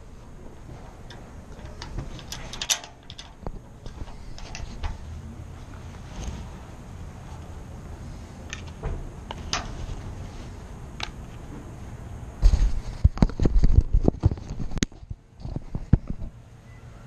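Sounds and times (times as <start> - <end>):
metal tool clicking on a lock: 1.1 - 5.0.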